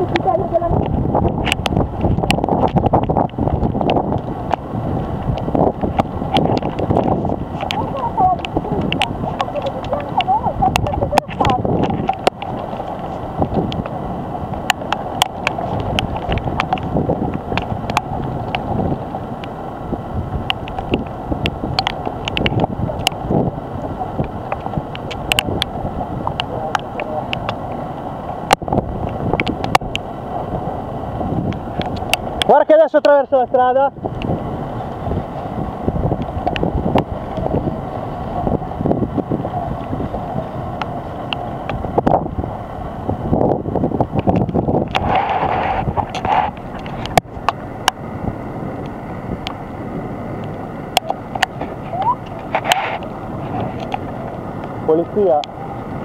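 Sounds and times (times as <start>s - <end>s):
wind buffeting microphone: 0.0s - 56.0s
sharp ticks: 5.2s - 18.7s, 20.4s - 23.2s.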